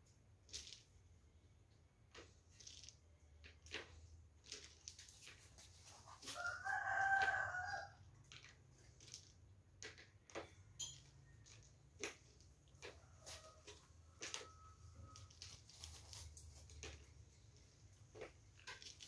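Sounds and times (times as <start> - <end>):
rooster crowing: 6.3 - 8.0.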